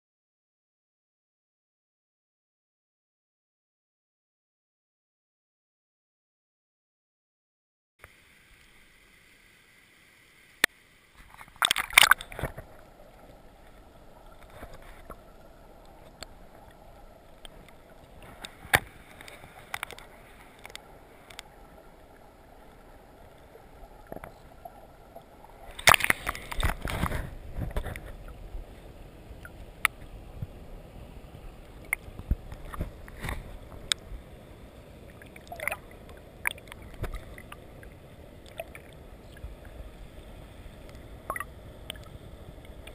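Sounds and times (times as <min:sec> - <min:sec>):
water splashing: 0:08.0 - 0:42.9
muffled underwater water sloshing: 0:11.1 - 0:42.9.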